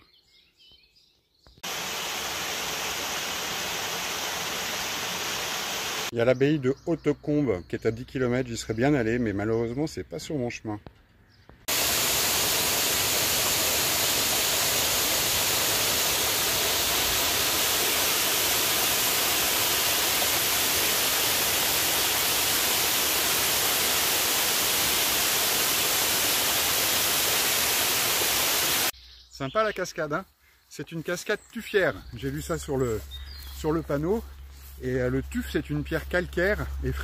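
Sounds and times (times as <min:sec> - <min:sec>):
waterfall rushing: 0:01.6 - 0:06.1, 0:11.7 - 0:28.9.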